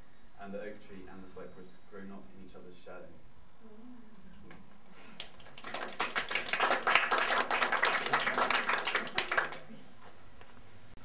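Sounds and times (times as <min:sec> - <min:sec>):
hands clapping: 0:05.2 - 0:09.8.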